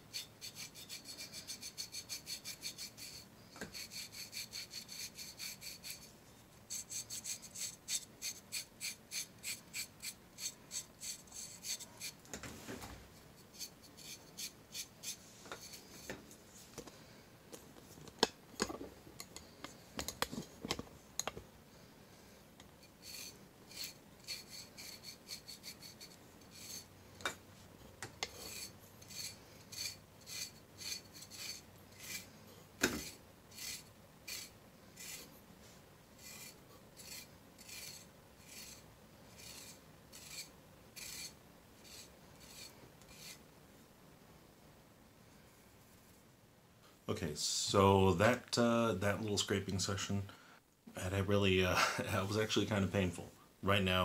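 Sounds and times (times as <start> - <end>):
blade scraping skin: 6.7 - 12.2, 23.0 - 26.9, 28.3 - 32.3, 33.0 - 35.3, 36.2 - 43.4.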